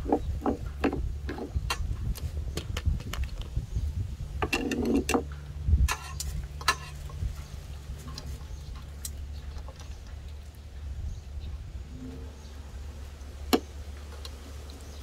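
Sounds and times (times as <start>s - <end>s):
steady low hum: 0.0s - 15.0s
metal tongs clinking on bowl: 5.9s - 7.2s.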